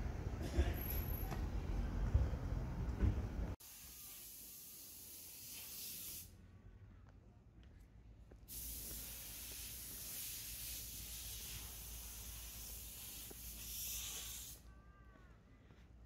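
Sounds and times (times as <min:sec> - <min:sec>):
faint footsteps on pavement: 0:06.4 - 0:16.0
wind hiss: 0:08.5 - 0:14.7.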